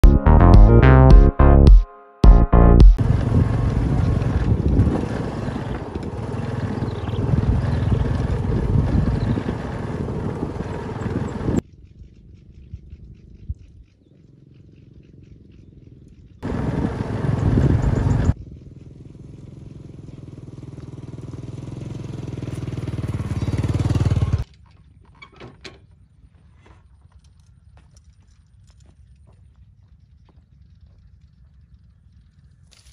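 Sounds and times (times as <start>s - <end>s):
motorcycle engine running: 2.4s - 11.6s, 13.7s - 24.4s
wind and road noise: 3.0s - 14.0s, 15.4s - 24.6s.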